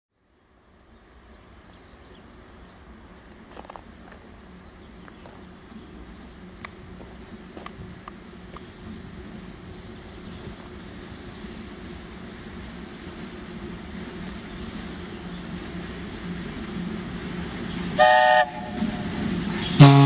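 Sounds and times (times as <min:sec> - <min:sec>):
freight train rumbling and humming: 0:00.2 - 0:20.0.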